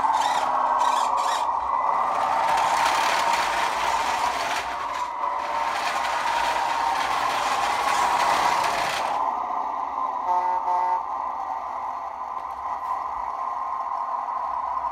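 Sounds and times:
electric motor whining: 0.0 - 9.3
wheels rolling on concrete: 0.0 - 9.3.

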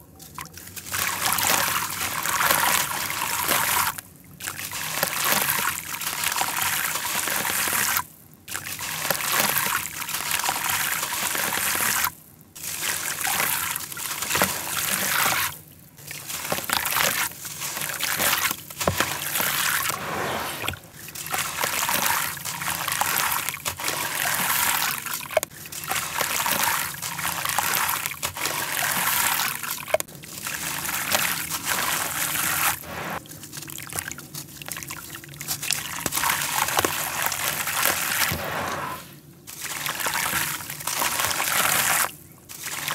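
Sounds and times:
water trickling and sloshing: 0.0 - 42.9.

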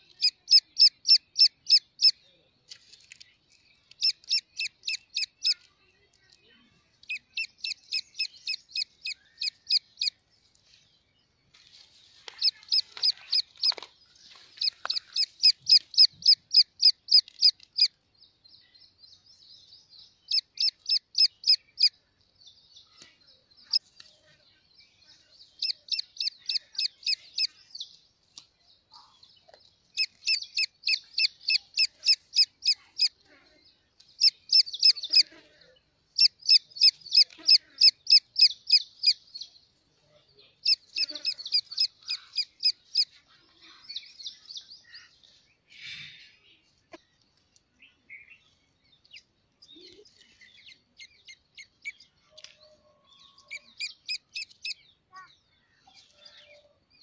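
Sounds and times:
chick peeping: 0.0 - 2.3, 3.8 - 10.2, 11.8 - 18.0, 20.2 - 22.0, 25.5 - 27.9, 29.0 - 33.4, 34.0 - 35.5, 36.1 - 39.4, 40.2 - 45.8, 49.0 - 56.8.

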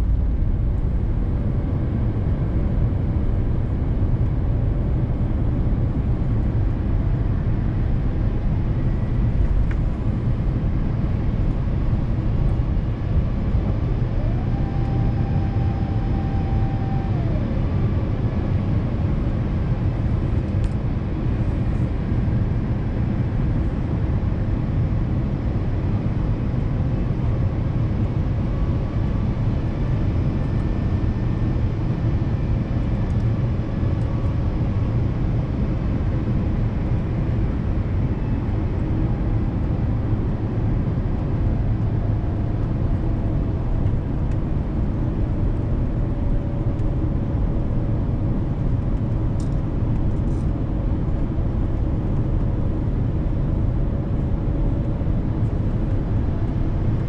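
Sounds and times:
airplane cabin rumble: 0.0 - 57.0
high whine: 5.9 - 20.8.

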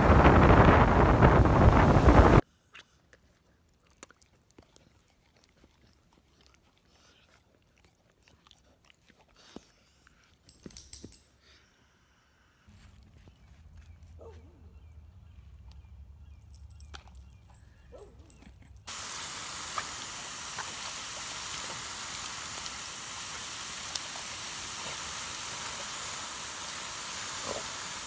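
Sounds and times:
hose spraying water into puddle: 18.9 - 28.0.

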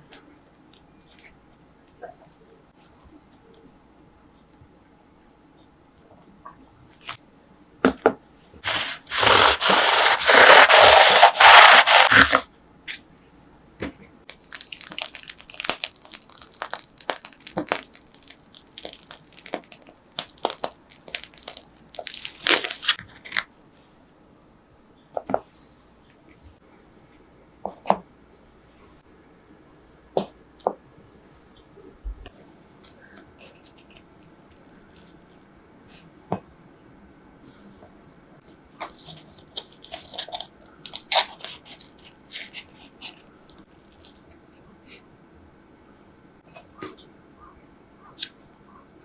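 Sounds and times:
plastic bag crinkling: 14.3 - 23.4, 33.8 - 35.1, 39.6 - 44.2
pastry shell crackling and crunching: 14.3 - 23.5, 33.4 - 35.2, 39.0 - 44.4.

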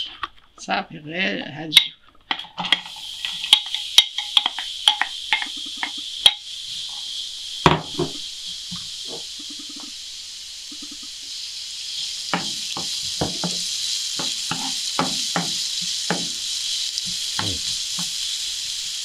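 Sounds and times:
onion sizzling in oil: 1.7 - 19.0
wooden spoon knocking on pan: 7.6 - 8.2, 12.3 - 16.4, 17.1 - 18.2.

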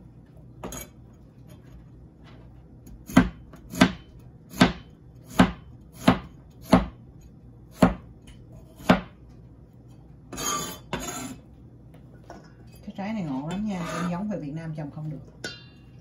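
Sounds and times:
cleaver chopping on cutting board: 3.1 - 7.0, 7.8 - 8.0, 8.8 - 9.1
knife scraping board: 10.3 - 11.4, 13.7 - 14.2.

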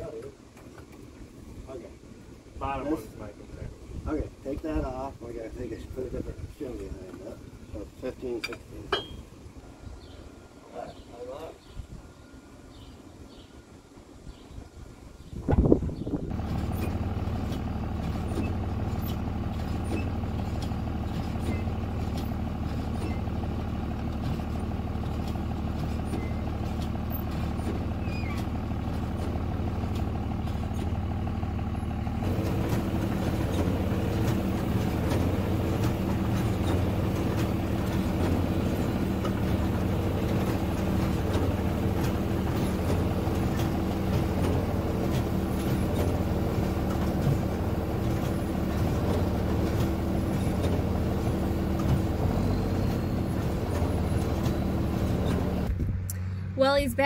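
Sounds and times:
tractor running under load: 15.2 - 57.0.

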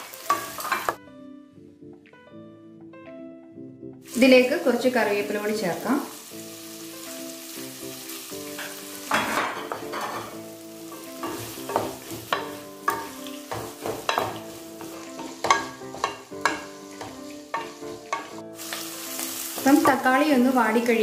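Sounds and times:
onions sizzling in oil: 0.0 - 1.0, 4.0 - 21.0
background music: 0.0 - 21.0
spatula scraping pan: 8.5 - 20.1.

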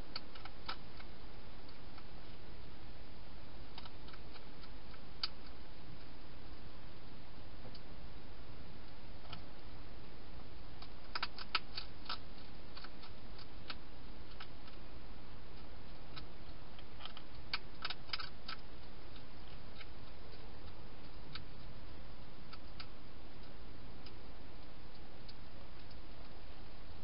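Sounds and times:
steady hiss: 0.0 - 27.0
hedgehog crunching dry food: 0.1 - 2.2, 3.7 - 5.6, 10.7 - 14.9, 15.5 - 24.3.

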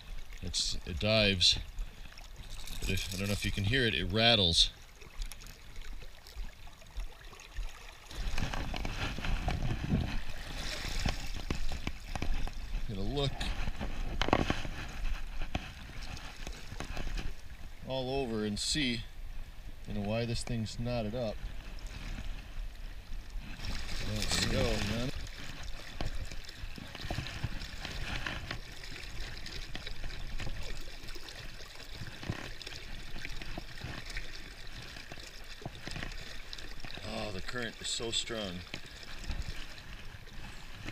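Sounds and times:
water sloshing from wading: 0.0 - 40.9
fishing lure rattling: 2.4 - 3.5.

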